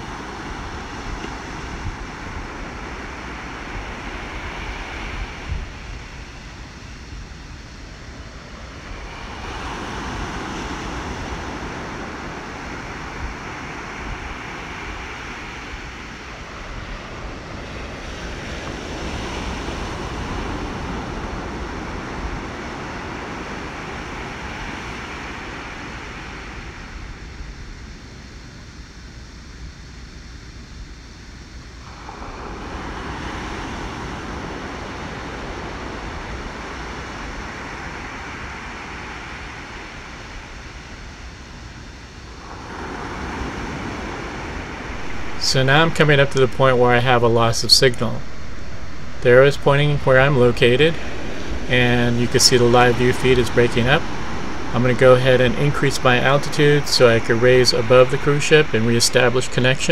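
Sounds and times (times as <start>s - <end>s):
ocean surf: 0.0s - 27.7s, 31.8s - 59.9s.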